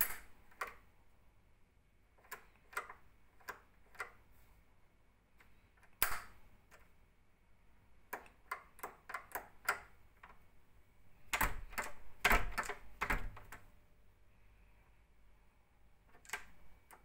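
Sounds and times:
door lock clicking: 2.2s - 4.2s, 8.1s - 10.4s, 11.2s - 13.7s, 16.1s - 17.0s.

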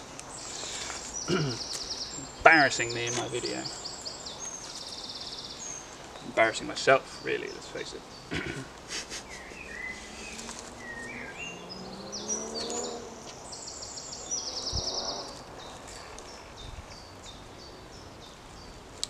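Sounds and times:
birds chirping: 0.0s - 19.0s
bird trill: 9.1s - 18.1s.

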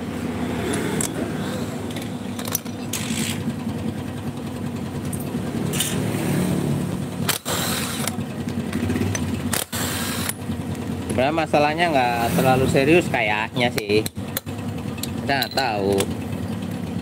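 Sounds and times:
cordless drill motor running: 9.5s - 10.4s.

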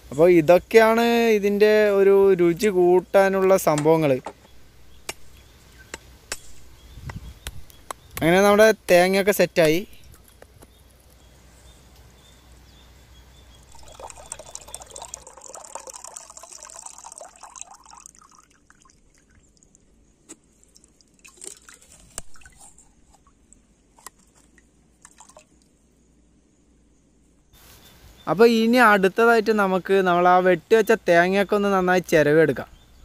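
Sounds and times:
water pouring: 13.6s - 22.9s, 25.0s - 25.7s
water dripping: 13.6s - 25.8s.

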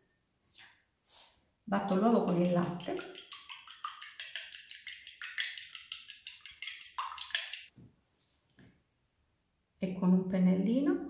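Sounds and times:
whisking in glass bowl: 1.8s - 7.7s.

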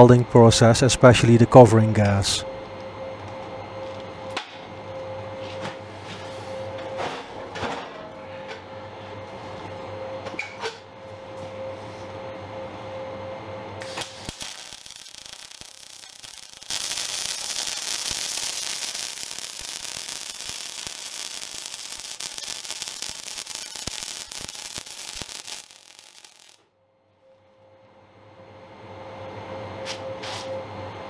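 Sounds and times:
welding arc crackling: 13.8s - 26.6s.

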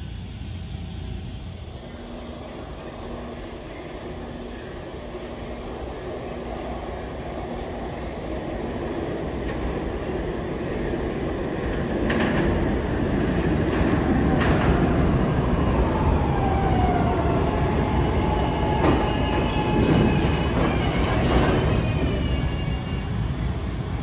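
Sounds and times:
falling whine of slowing train: 0.0s - 24.0s
subway train rumble: 0.0s - 24.0s
high steady brake squeal: 17.9s - 24.0s.

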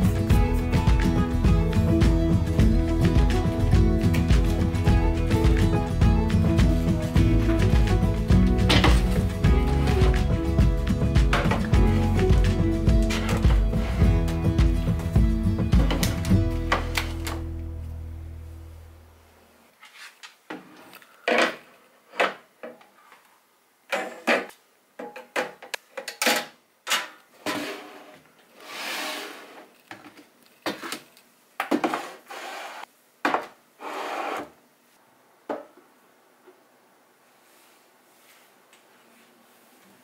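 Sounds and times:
containers scraping along shelf: 27.4s - 29.7s, 31.8s - 32.9s, 33.8s - 34.6s.

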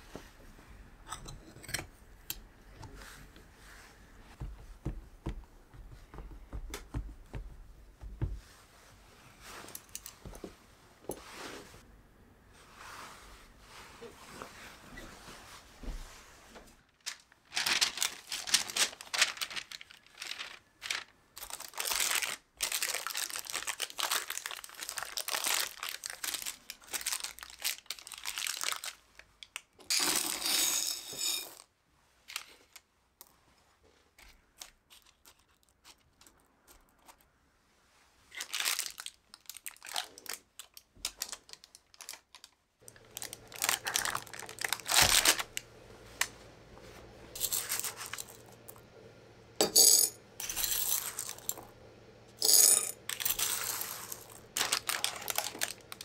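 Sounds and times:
baking paper crinkling: 16.9s - 30.5s, 34.3s - 37.3s, 38.2s - 48.8s, 53.0s - 56.0s.

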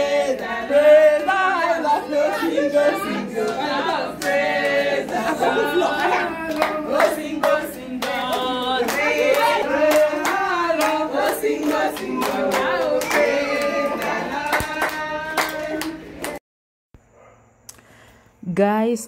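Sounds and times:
women singing together: 0.0s - 16.4s
hand clapping: 3.4s - 16.4s.

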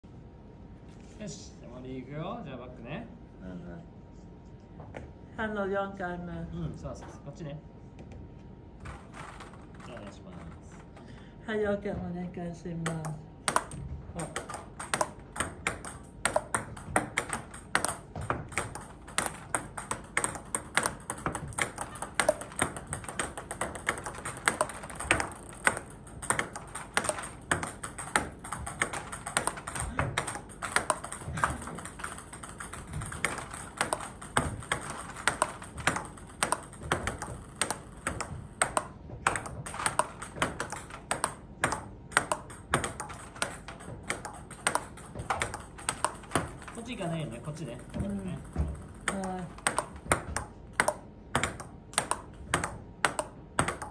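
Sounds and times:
table tennis ball clicks: 12.8s - 53.9s.

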